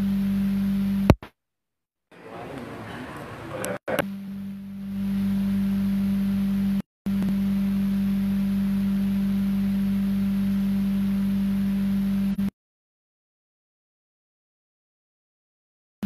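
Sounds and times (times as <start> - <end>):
low electronic hum tone: 0.0 - 1.2, 3.6 - 12.5.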